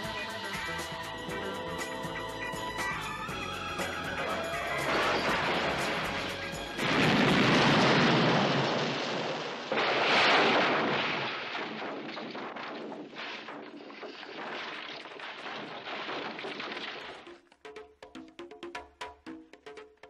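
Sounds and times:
explosive blast: 4.8s - 17.1s
car crashing into dirt: 6.8s - 12.0s.

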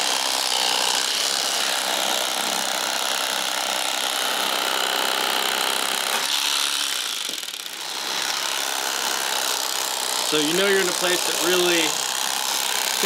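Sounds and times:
electric fillet knife running: 0.0s - 13.0s.

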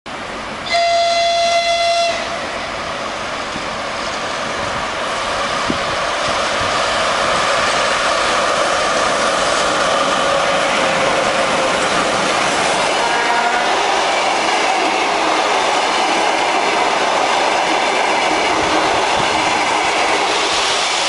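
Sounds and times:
train rushing past: 0.1s - 21.0s
locomotive whistle: 0.6s - 2.5s, 13.0s - 13.8s.

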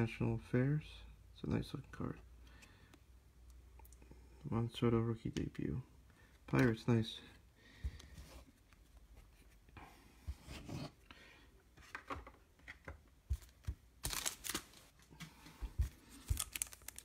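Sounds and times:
card packs rustling: 13.3s - 17.0s.

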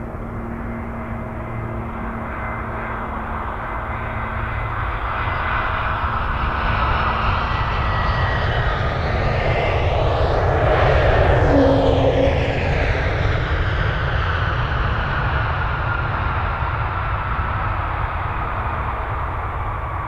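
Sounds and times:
jet airliner engines: 0.0s - 20.0s
thin engine whine: 11.2s - 13.6s.

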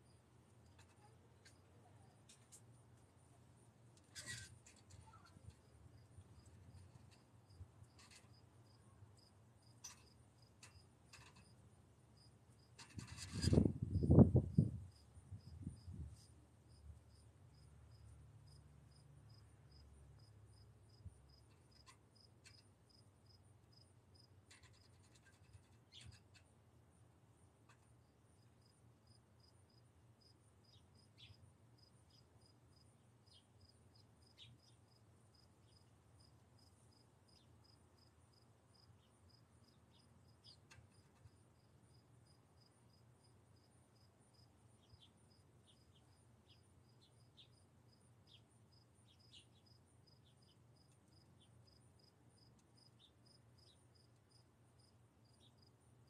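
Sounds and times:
soft clicks and scratches: 0.5s - 3.1s, 3.9s - 8.5s, 9.2s - 11.6s, 12.6s - 13.8s, 21.4s - 22.7s, 24.4s - 26.5s, 27.6s - 28.0s, 40.0s - 41.4s
cricket chirping: 16.7s - 26.4s, 28.0s - 55.7s.

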